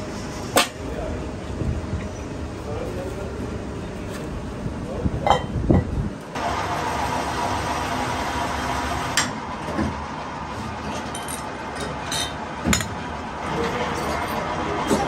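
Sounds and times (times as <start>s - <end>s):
machinery hum: 0.0s - 15.0s
metal parts clinking: 10.9s - 12.9s.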